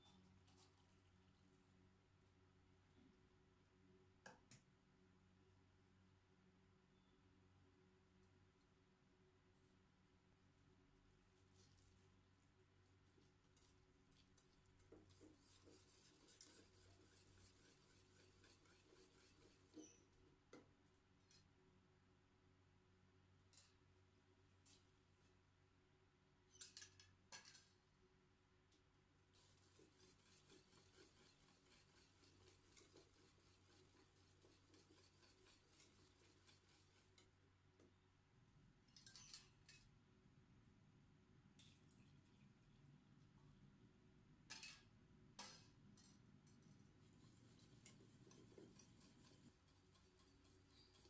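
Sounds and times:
whisk scratching through rice: 0:11.4 - 0:12.2, 0:13.0 - 0:20.4, 0:29.3 - 0:37.4, 0:46.8 - 0:51.0.

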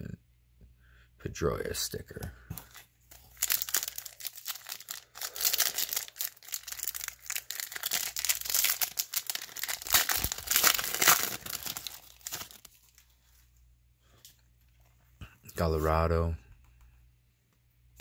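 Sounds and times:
foil wrapper crinkling and tearing: 0:02.6 - 0:13.2.

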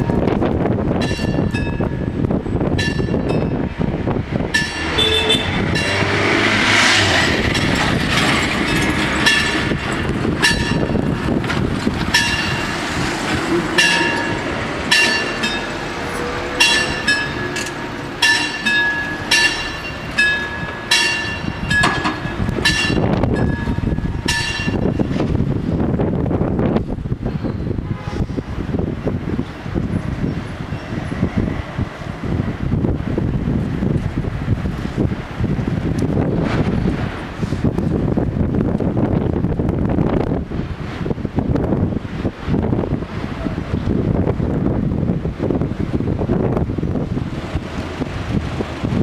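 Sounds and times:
level crossing bells ringing: 0:13.8 - 0:24.8.

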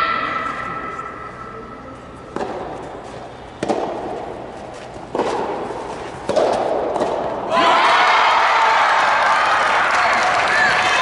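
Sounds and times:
racket striking ball echoing: 0:02.2 - 0:07.5.

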